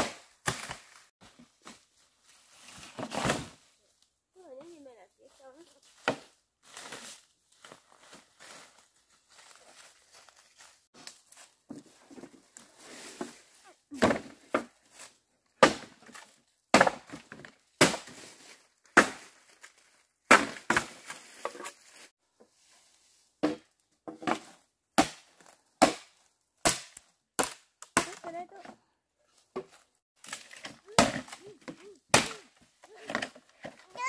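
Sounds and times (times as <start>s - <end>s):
chopping blows: 30.8s - 33.2s.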